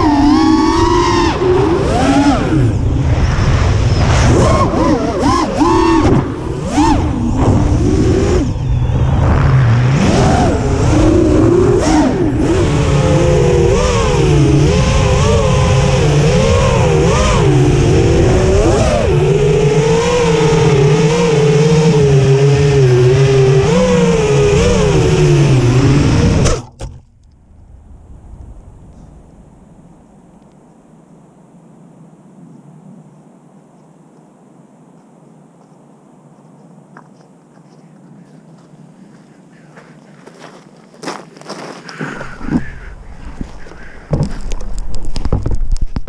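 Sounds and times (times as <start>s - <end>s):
drone hitting snowy ground: 0.0s - 19.5s, 24.1s - 30.4s, 42.0s - 46.0s
drone motors whining: 0.0s - 29.5s, 41.9s - 45.9s.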